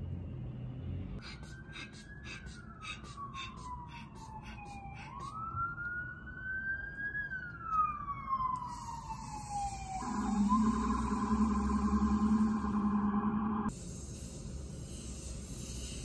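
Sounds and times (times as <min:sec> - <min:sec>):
emergency siren wailing: 0:01.2 - 0:13.7
low steady hum: 0:09.9 - 0:14.6.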